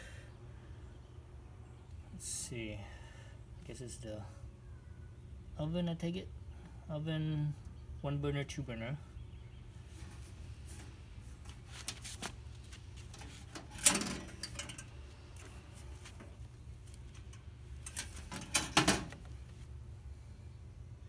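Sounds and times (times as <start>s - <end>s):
metal lid clanking: 17.8s - 19.2s.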